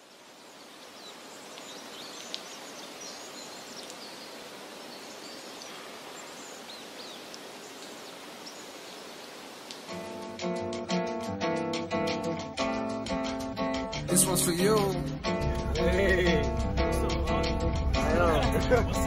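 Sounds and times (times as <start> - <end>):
rustling foliage: 0.0 - 13.4.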